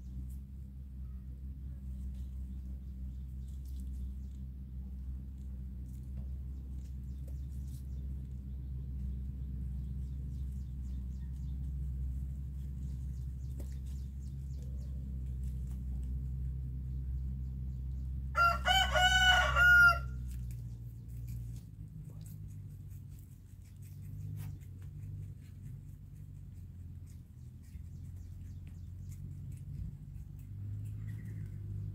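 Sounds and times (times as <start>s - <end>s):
steady low rumble: 0.0s - 31.9s
rooster crowing: 18.3s - 20.2s.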